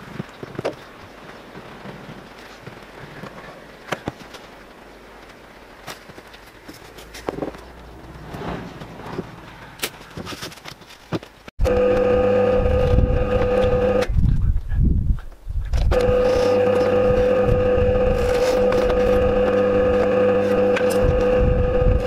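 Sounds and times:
drill press motor hum: 0:11.6 - 0:14.1, 0:15.9 - 0:22.0.

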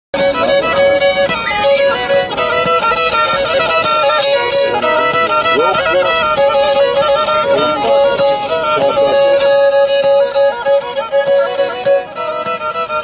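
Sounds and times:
bowed fiddle folk tune: 0:00.2 - 0:13.0.

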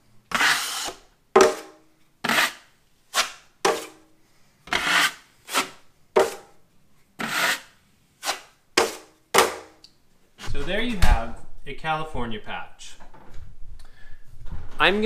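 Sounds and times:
drywall knife scraping wall: 0:00.3 - 0:04.0, 0:04.7 - 0:06.5, 0:07.2 - 0:09.7.

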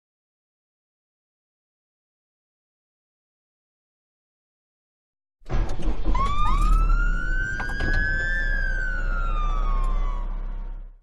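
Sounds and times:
deep hum: 0:05.5 - 0:11.0
wailing siren tones: 0:05.8 - 0:11.0.

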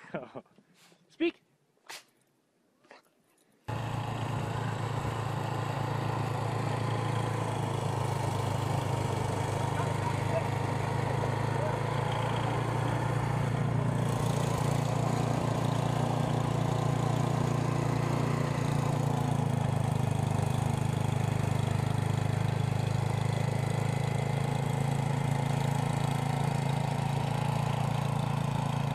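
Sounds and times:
small engine running: 0:03.7 - 0:28.9.

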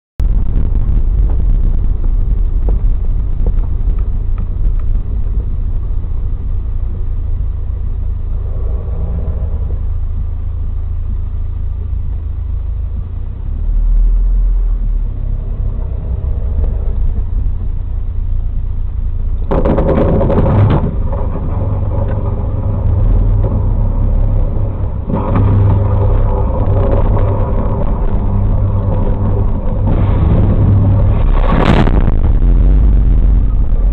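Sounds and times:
car engine and tyres rumbling: 0:00.2 - 0:33.9
electric arc buzzing burst: 0:22.7 - 0:33.9.

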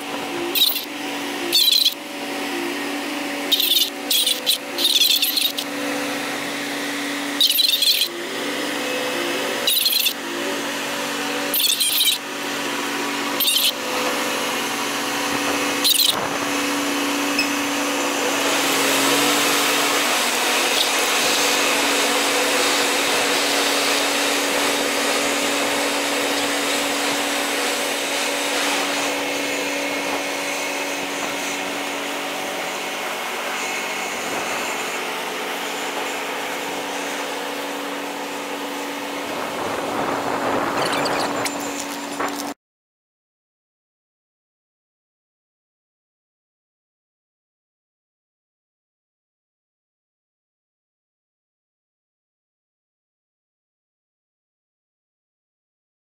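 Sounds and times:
ship machinery hum: 0:00.0 - 0:42.6
high-pitched chirps: 0:00.5 - 0:00.9, 0:01.5 - 0:02.0, 0:03.5 - 0:05.7, 0:07.4 - 0:08.1, 0:09.6 - 0:10.2, 0:11.5 - 0:12.2, 0:13.4 - 0:13.8, 0:15.8 - 0:16.2.

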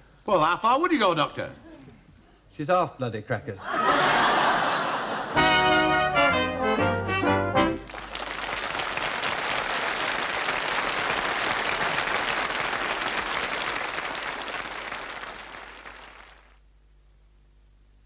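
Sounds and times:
audience applauding: 0:07.7 - 0:16.6.

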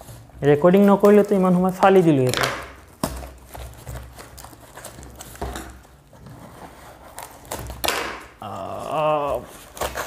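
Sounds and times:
cardboard flaps scraping and rustling: 0:03.0 - 0:08.0.

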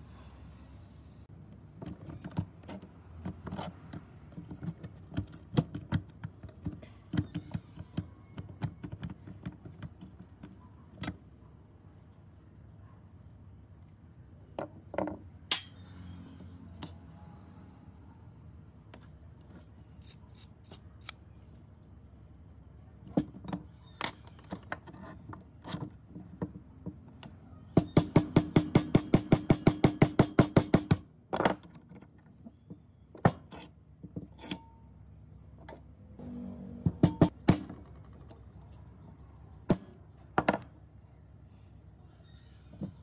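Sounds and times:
hammer striking steel blade: 0:15.5 - 0:15.8.

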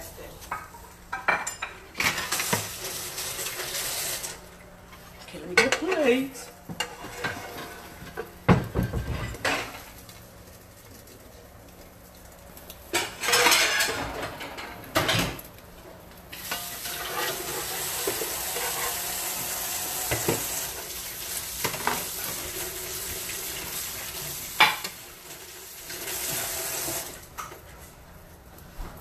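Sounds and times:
toast sizzling in a pan: 0:00.0 - 0:29.0.

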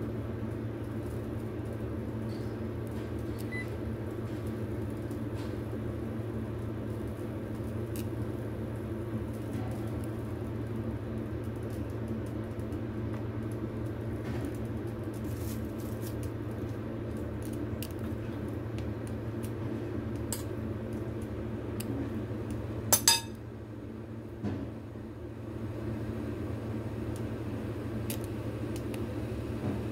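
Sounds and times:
steady low hum: 0:00.0 - 0:29.9
metal spoon clinking on bowl: 0:23.0 - 0:23.4.

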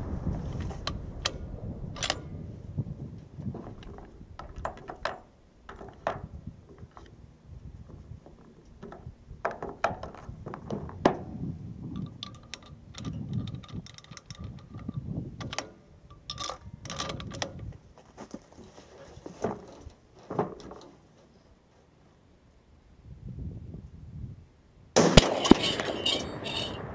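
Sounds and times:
low rumbling handling noise: 0:00.0 - 0:21.7
rifle bolt clicks and clacks: 0:02.0 - 0:02.3, 0:12.0 - 0:17.8.

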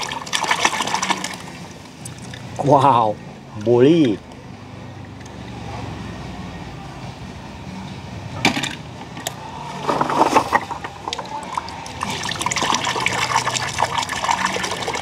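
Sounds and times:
water splashing: 0:00.0 - 0:02.6, 0:09.8 - 0:15.0
water churning and sloshing: 0:00.0 - 0:02.7, 0:09.7 - 0:15.0.

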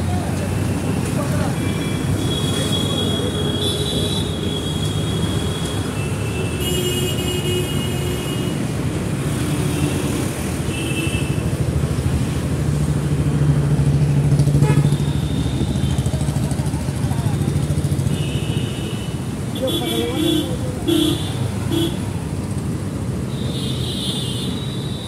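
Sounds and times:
road traffic: 0:00.0 - 0:25.0
vehicle horn notes: 0:14.6 - 0:15.8.

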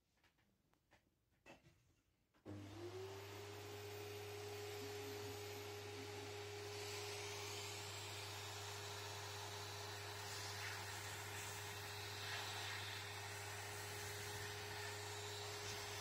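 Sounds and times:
vacuum cleaner running: 0:02.4 - 0:16.0.

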